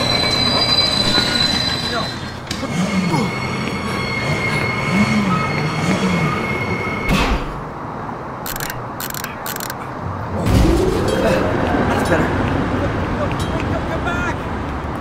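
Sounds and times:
cable car wheel squeal: 0.0 - 7.1
cable car rumbling: 0.0 - 15.0.

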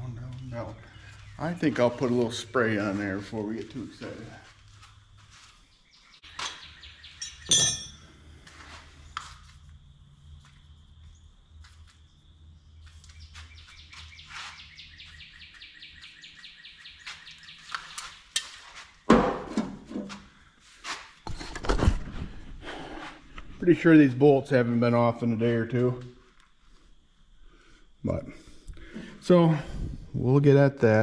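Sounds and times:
metallic clink: 7.2 - 8.1.

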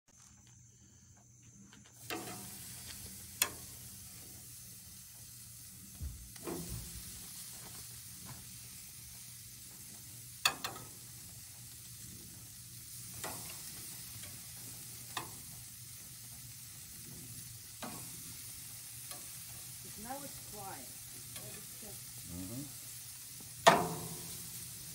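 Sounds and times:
steaks sizzling on a grill: 1.8 - 24.9
metal tongs clacking: 10.4 - 11.0, 21.3 - 21.8, 23.6 - 24.4.

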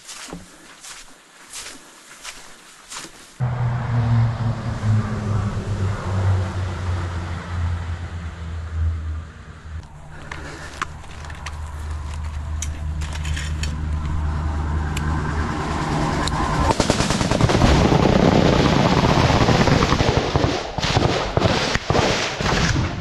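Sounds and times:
heavy truck engine droning: 3.4 - 19.6.

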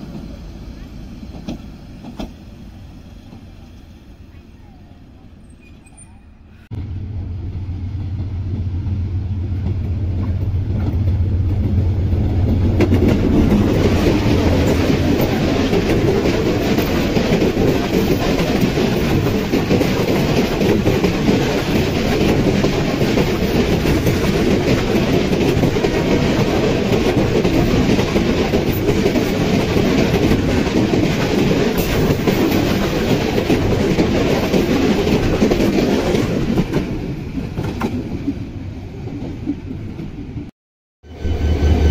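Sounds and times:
train wheels clattering on rails: 0.0 - 2.5, 8.0 - 38.4
diesel locomotive engine hum: 0.0 - 35.9, 36.5 - 41.9.

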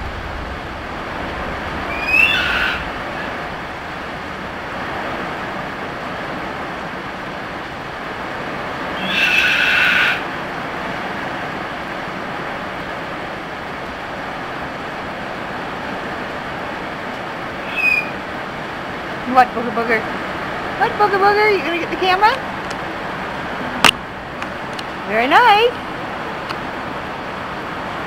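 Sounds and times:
heavy rain on a metal roof: 0.0 - 28.0
macaw harsh call: 1.9 - 3.3, 9.0 - 10.3, 17.6 - 18.2.

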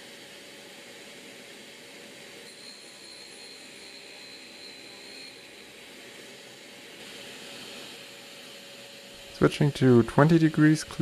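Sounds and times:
high whine of drill grinding: 0.0 - 11.0
grinder motor hum: 2.5 - 11.0.

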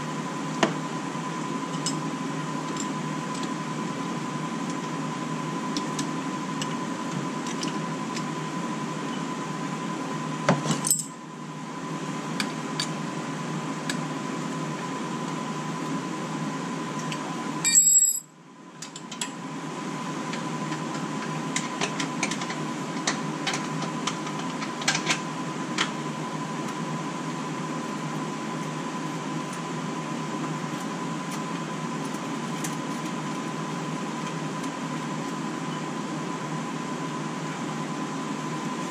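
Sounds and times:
steady background hum: 0.0 - 38.9
hand tools clinking on metal: 17.7 - 18.3.

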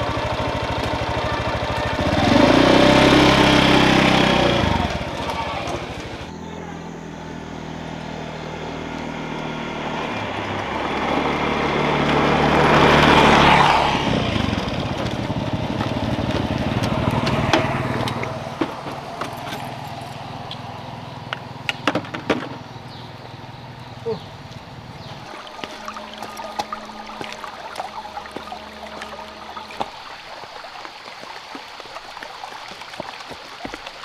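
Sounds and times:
small engine running: 0.0 - 21.3, 22.9 - 34.0.

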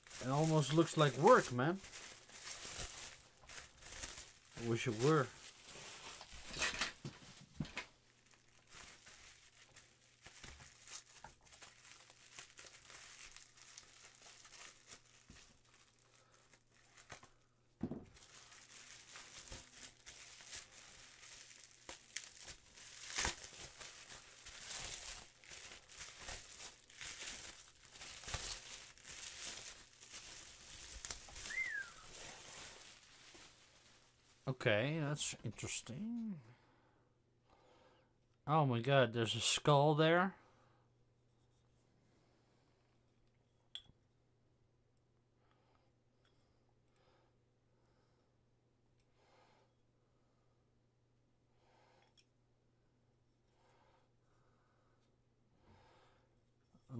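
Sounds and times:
bubble wrap and plastic crinkling: 0.0 - 36.0.

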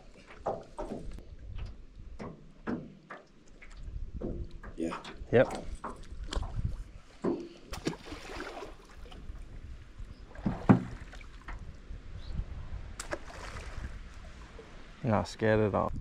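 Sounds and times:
water sloshing against boat hull: 0.0 - 11.8
wind on microphone: 3.8 - 7.1, 9.0 - 14.9, 15.8 - 16.0.

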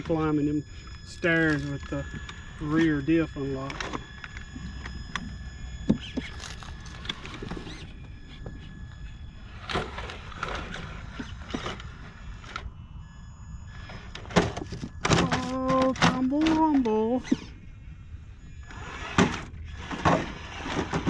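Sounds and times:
toy car motor whine: 0.0 - 21.0.

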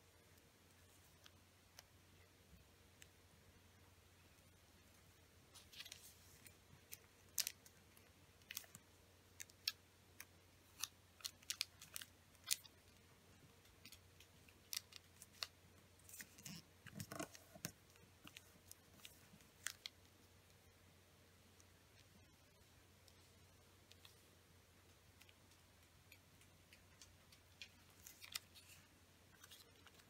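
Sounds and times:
paper crackling as folded: 5.6 - 8.8, 10.6 - 13.0, 13.8 - 20.0, 27.5 - 30.0.

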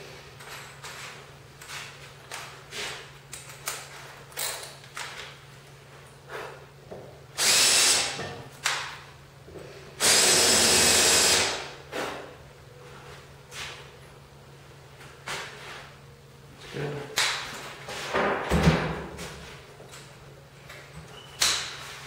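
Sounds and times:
cordless drill motor whine: 10.0 - 11.6.

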